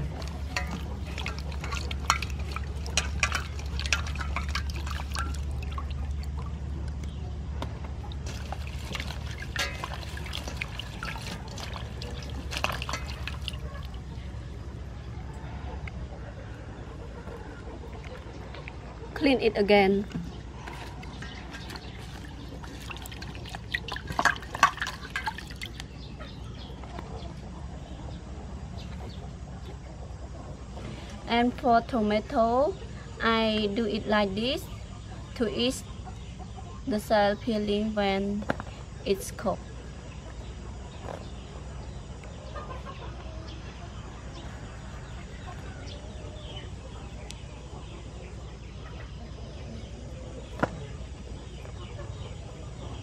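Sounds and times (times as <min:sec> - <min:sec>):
hands splashing water in a bowl: 0:00.0 - 0:06.5, 0:08.1 - 0:14.2, 0:20.7 - 0:25.8
chickens clucking: 0:00.0 - 0:31.2, 0:32.1 - 0:53.0
steady low hum: 0:00.0 - 0:53.0.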